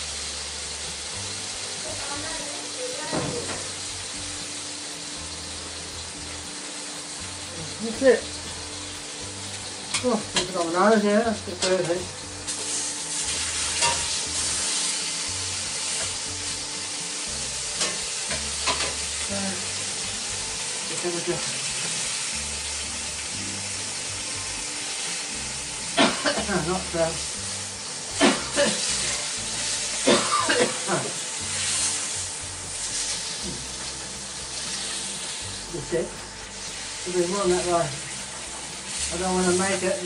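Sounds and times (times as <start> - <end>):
meat sizzling in a wok: 0.0 - 40.0.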